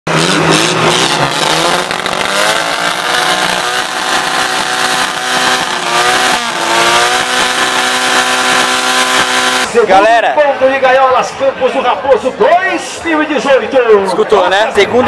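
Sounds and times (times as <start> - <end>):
buggy engine at high revs: 0.1 - 9.8.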